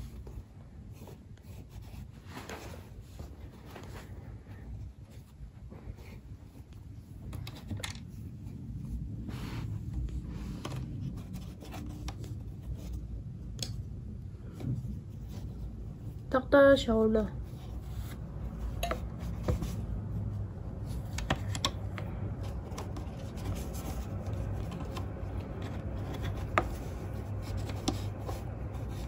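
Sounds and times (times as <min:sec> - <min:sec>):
fabric rustling: 0:00.0 - 0:07.4.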